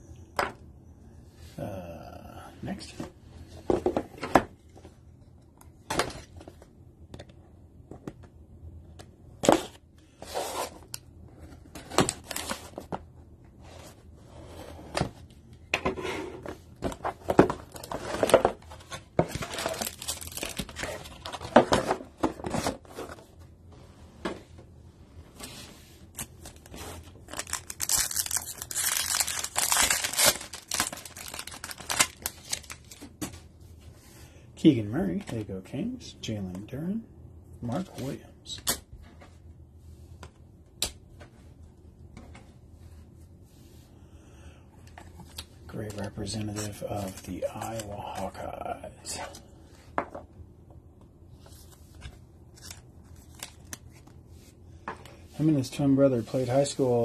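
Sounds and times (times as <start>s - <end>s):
foil pack crinkling: 19.4s - 21.4s, 27.2s - 33.0s.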